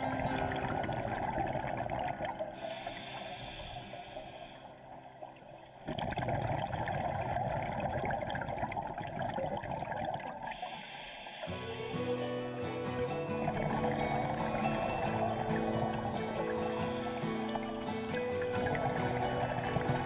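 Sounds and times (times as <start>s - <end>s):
exhaled bubbles gurgling: 0.0s - 20.0s
regulator hissing inhale: 2.6s - 4.8s, 10.5s - 12.1s, 14.4s - 19.8s.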